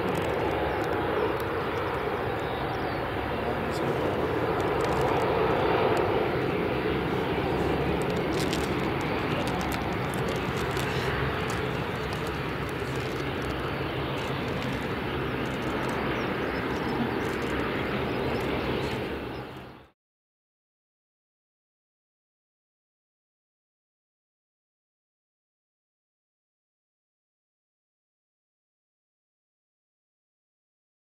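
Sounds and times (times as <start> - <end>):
turboprop engines and propellers drone: 0.0 - 20.0.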